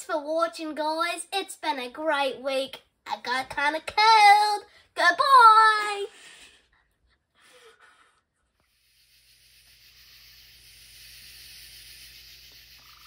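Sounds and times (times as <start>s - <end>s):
faint steady hiss: 8.4s - 13.0s.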